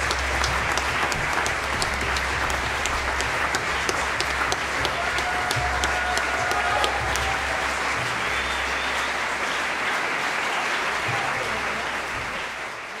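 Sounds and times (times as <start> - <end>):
audience applauding: 0.0 - 13.0.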